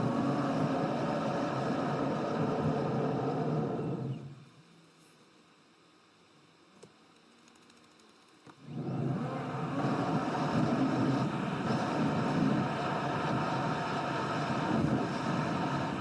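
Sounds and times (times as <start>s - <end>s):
car tyre and road rumble: 8.7s - 16.0s
wind rushing past car: 8.8s - 16.0s.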